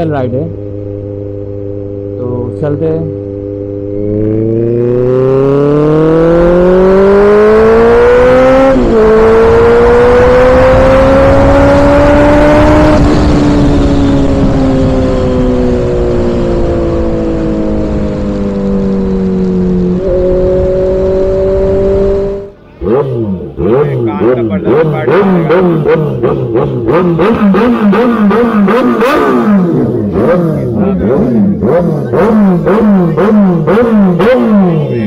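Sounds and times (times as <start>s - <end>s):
motorcycle engine accelerating: 0.0s - 35.0s
wind rush: 8.7s - 22.5s.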